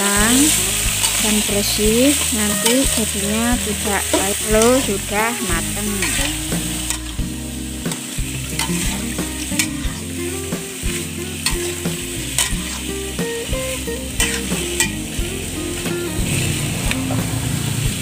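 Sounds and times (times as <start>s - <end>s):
vegetables sizzling in hot oil: 0.0s - 18.0s
metal spatula scraping a pan: 0.3s - 7.2s, 8.6s - 10.2s, 10.8s - 12.9s, 14.2s - 15.5s.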